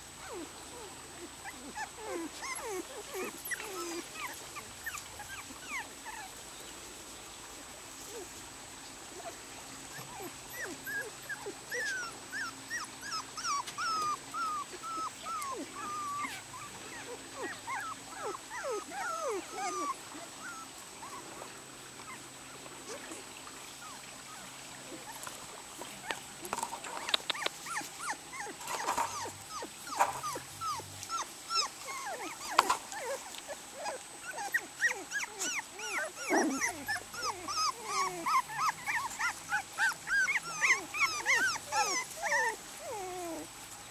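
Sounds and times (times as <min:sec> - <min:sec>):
puppies yipping: 0:00.2 - 0:06.3, 0:09.9 - 0:21.3, 0:26.0 - 0:43.5
puppies whimpering and squeaking: 0:00.2 - 0:06.4, 0:09.9 - 0:21.3, 0:22.0 - 0:23.2, 0:26.0 - 0:43.5.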